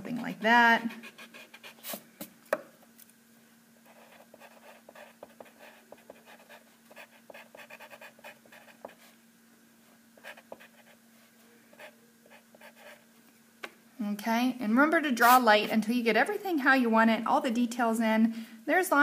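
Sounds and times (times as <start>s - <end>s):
pencil scratching on paper: 0.9s - 2.0s, 3.9s - 9.1s, 10.2s - 11.0s, 11.8s - 13.0s.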